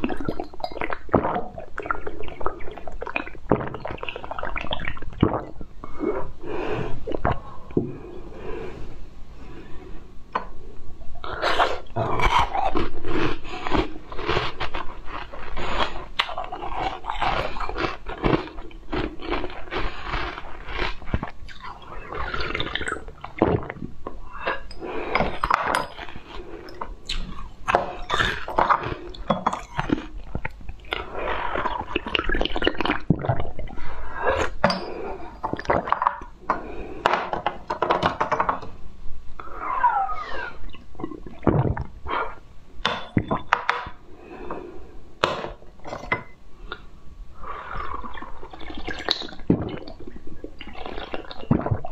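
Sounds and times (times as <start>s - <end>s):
person chewing candy: 11.2s - 33.7s.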